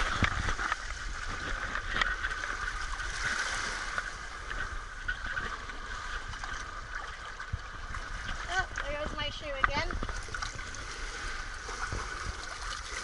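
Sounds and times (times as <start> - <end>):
seawater sloshing and lapping: 0.0 - 13.0.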